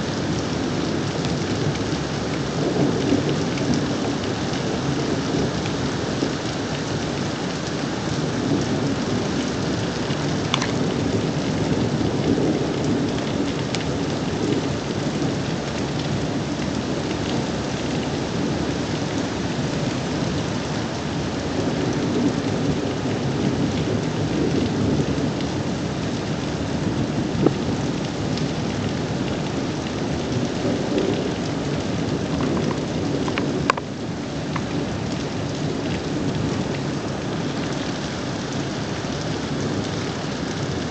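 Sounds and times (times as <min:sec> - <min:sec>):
steady rain: 0:00.0 - 0:40.9
thunder rumbling: 0:08.2 - 0:16.2, 0:21.6 - 0:37.8.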